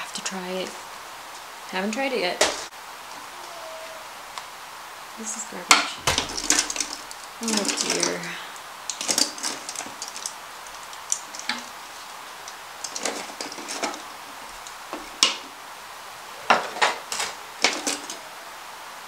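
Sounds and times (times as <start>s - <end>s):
plastic items clicking in a drawer: 6.1s - 8.2s, 8.9s - 11.7s, 12.4s - 15.4s, 16.6s - 18.2s.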